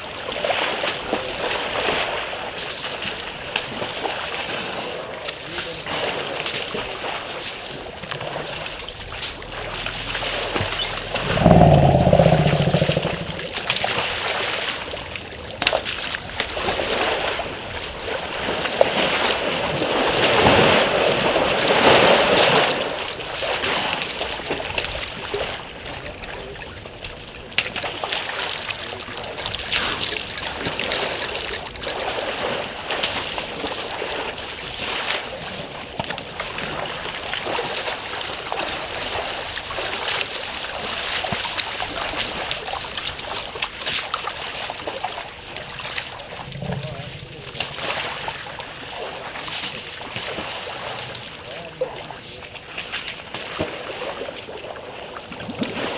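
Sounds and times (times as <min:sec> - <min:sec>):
water splashing and sloshing: 0:00.0 - 0:55.9
loud low-pitched sound: 0:08.4 - 0:13.9, 0:46.2 - 0:48.9.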